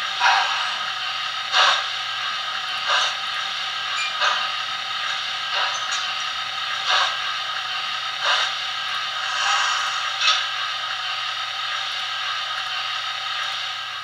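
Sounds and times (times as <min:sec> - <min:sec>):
steam locomotive puffs: 0:00.0 - 0:11.8
steam hiss from small speaker: 0:09.0 - 0:10.8.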